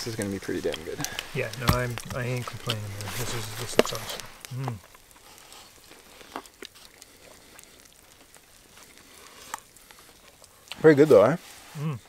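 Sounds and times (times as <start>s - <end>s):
campfire crackling: 0.0s - 12.0s
short vocal sound: 11.8s - 12.0s.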